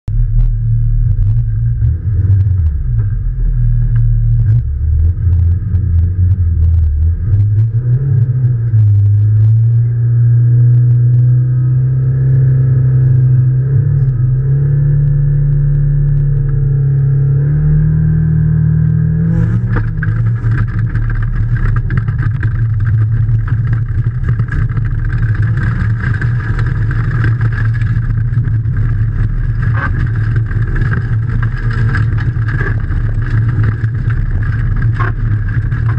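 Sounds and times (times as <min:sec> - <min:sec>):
rally car engine revving: 0:00.1 - 0:35.9
tyres on gravel: 0:19.3 - 0:35.9.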